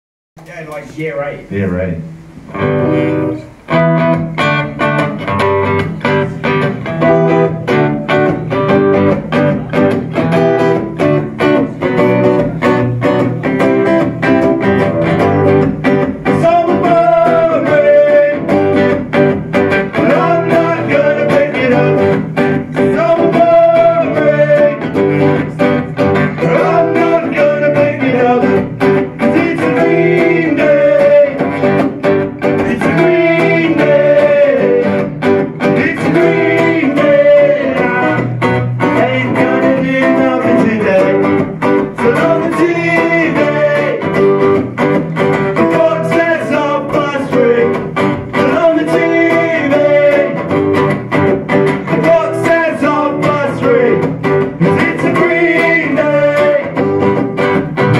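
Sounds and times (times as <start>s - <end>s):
electric and acoustic guitars strumming: 0.4s - 57.9s
person singing: 15.1s - 19.1s, 19.8s - 44.4s, 45.5s - 50.6s, 51.8s - 57.3s.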